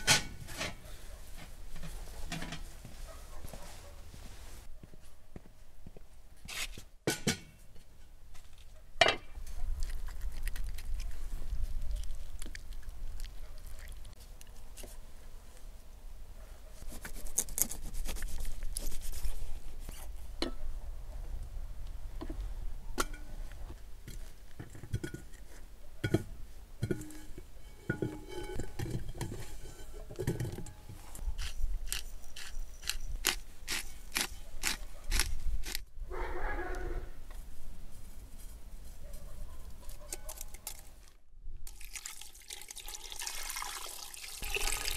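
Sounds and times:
metal pot and lid clinking: 0.0s - 0.8s, 7.1s - 7.6s, 23.0s - 23.4s, 26.0s - 31.0s.

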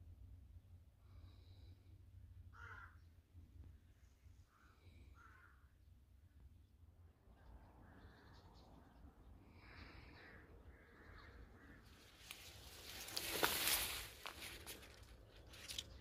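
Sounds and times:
crows cawing: 2.5s - 3.1s, 4.5s - 5.8s, 9.4s - 14.8s
rustling of leaves and twigs: 11.0s - 16.0s.

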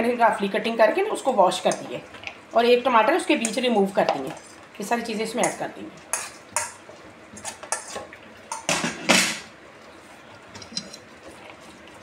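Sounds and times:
kitchenware clinking and knocking: 8.6s - 9.5s.

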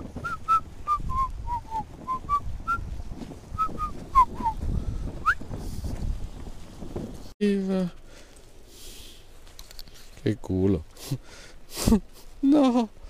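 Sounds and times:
footsteps on dirt path: 0.0s - 7.4s
wind on microphone: 0.0s - 7.4s
person whistling a tune: 0.2s - 2.8s, 3.6s - 4.6s.

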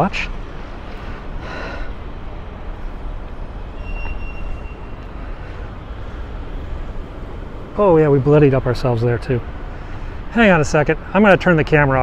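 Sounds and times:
low rumble of street traffic: 0.0s - 12.0s
faint thin high tone: 3.7s - 5.1s.

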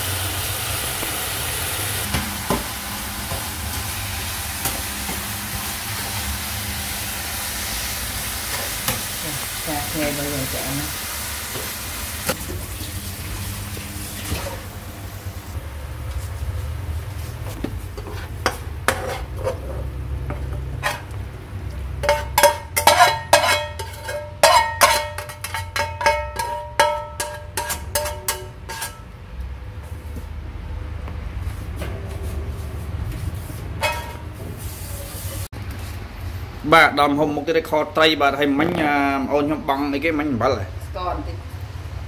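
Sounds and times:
spatula scraping frying pan: 17.4s - 21.2s, 22.0s - 29.1s, 33.5s - 35.5s.

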